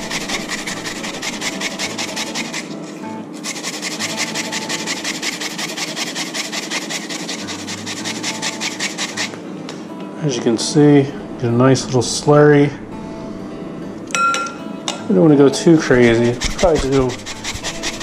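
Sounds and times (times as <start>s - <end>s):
onion rasping on grater: 0.0s - 9.3s, 15.9s - 18.0s.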